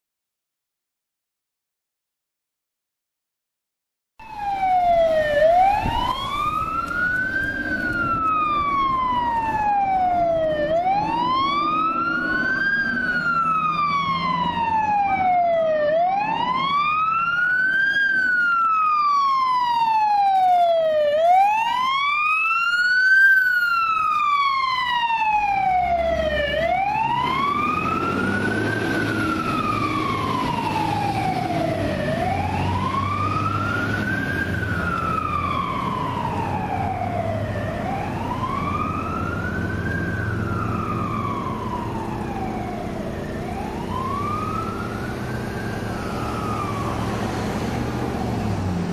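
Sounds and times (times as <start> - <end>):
faint fast sweeping siren: 4.2 - 48.7
emergency siren wailing: 4.2 - 48.9
heavy vehicle engine rumble: 4.5 - 15.8, 25.4 - 48.9.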